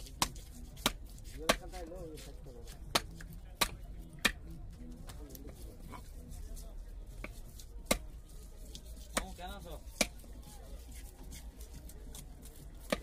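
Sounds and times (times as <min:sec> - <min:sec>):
knife chopping fish on wood: 0:00.0 - 0:04.5, 0:07.2 - 0:08.1, 0:09.0 - 0:10.4, 0:12.1 - 0:13.0
faint voices: 0:00.0 - 0:13.0.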